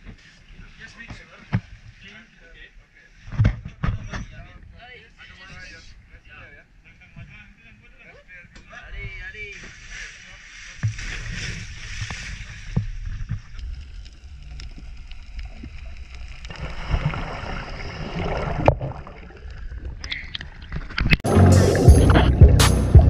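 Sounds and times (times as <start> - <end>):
water splashing and bubbling: 9.6 - 22.5
loud music: 21.2 - 23.0.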